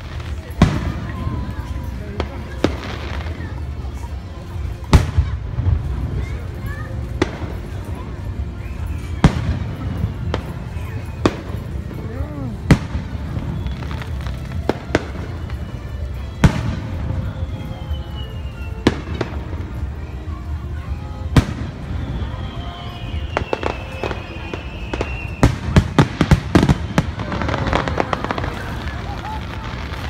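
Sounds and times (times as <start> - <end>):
crackling firework bangs: 0.0 - 30.0
falling firework whistle: 8.6 - 11.6, 12.7 - 20.1, 21.3 - 30.0.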